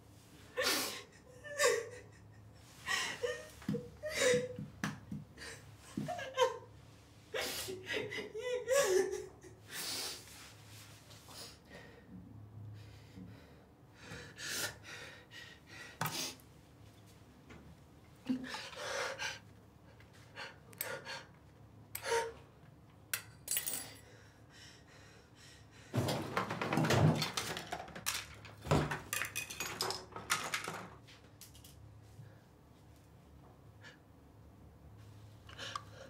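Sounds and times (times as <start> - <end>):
small objects clinking and knocking: 27.3 - 31.8.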